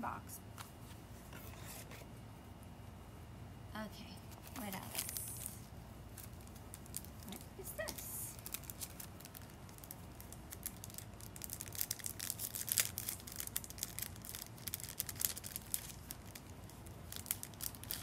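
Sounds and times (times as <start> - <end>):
packaging crinkling and tearing: 4.4 - 18.0.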